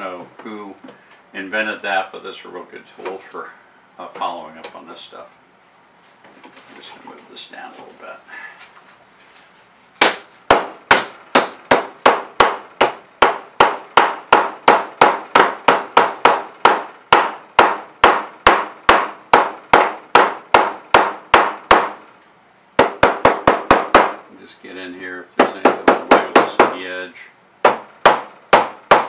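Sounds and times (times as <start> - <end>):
plastic mallet hammering metal: 10.0 - 22.0, 22.8 - 24.2, 25.4 - 26.9, 27.6 - 29.0.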